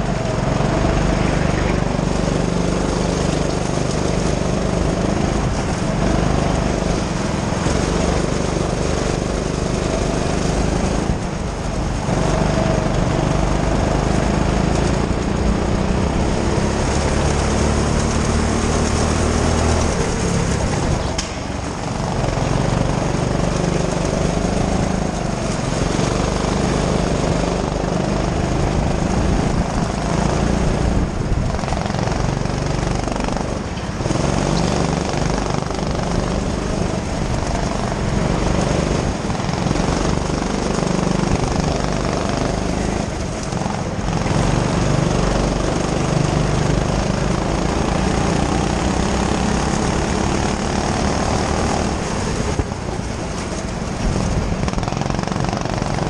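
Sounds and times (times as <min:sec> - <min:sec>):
go-kart engine running hard: 0:00.0 - 0:56.0.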